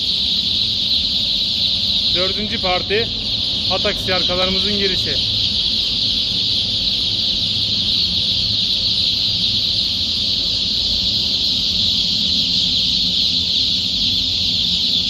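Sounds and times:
chicks cheeping: 0.0s - 15.0s.

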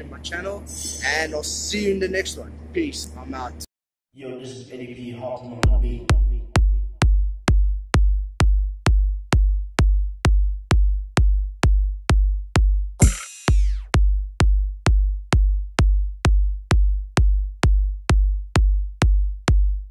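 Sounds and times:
deep booming kick drum: 5.6s - 19.9s
hip-hop beat: 5.6s - 19.9s
cymbal crash: 13.0s - 13.8s.

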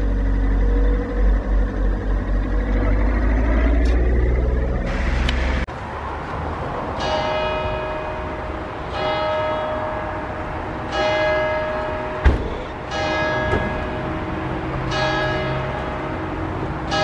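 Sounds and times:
low traffic rumble: 0.0s - 17.0s
church bell ringing: 7.0s - 17.0s.

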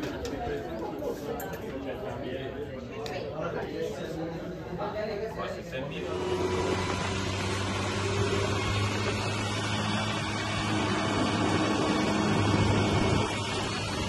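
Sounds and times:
dune buggy engine droning: 6.0s - 14.0s.

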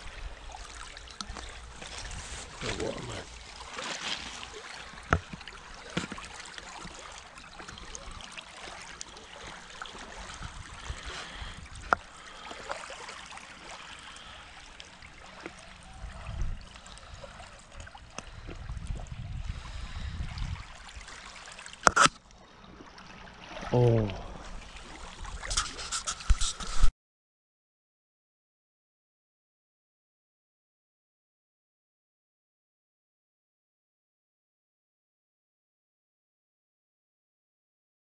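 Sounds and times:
small waves lapping on pebbles: 0.0s - 18.8s, 19.5s - 26.8s.

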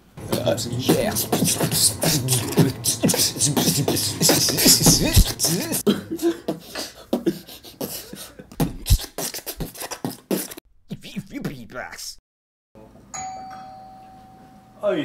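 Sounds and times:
sliding sung vocal tones: 0.0s - 10.6s
man beatboxing: 0.2s - 12.2s.

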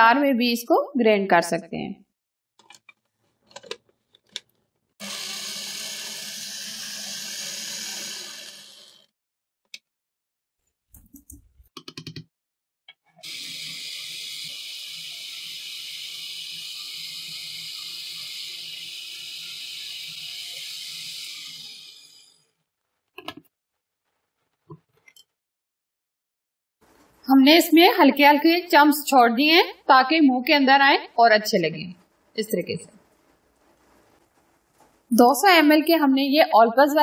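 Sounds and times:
plastic clicks and knocks: 2.6s - 4.6s, 23.2s - 23.5s
food chopper motor running: 5.0s - 9.1s, 13.2s - 22.4s.

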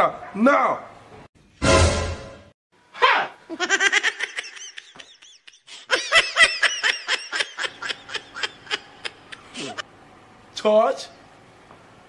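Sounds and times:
sped-up cartoonish laughter: 3.5s - 9.8s.

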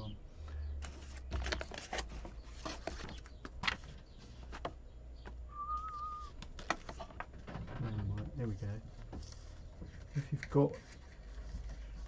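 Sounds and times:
wavering whistle-like tone: 5.5s - 6.4s.

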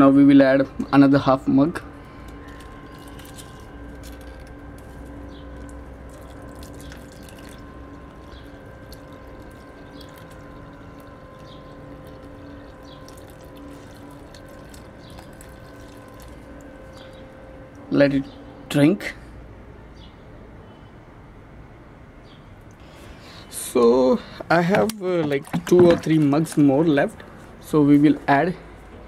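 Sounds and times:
faint steady hum: 0.0s - 29.0s
liquid trickling and dripping: 2.2s - 17.8s, 24.5s - 27.0s.

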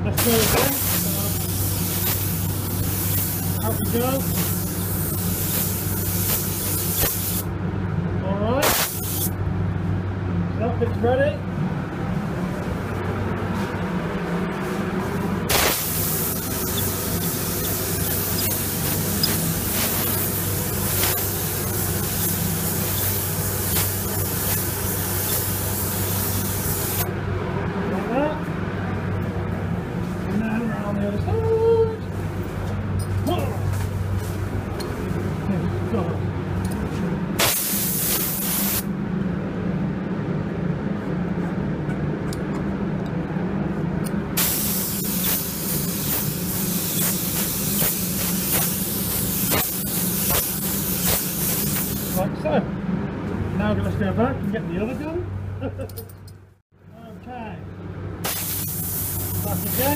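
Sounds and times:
steady low hum: 0.0s - 59.9s
paint spray gun hissing: 0.2s - 7.5s, 8.6s - 9.4s, 15.5s - 27.1s, 37.4s - 38.8s, 44.4s - 52.2s, 58.2s - 59.9s.

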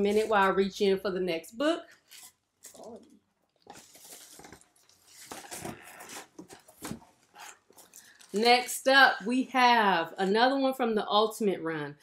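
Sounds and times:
packing material rustling: 2.0s - 8.9s.

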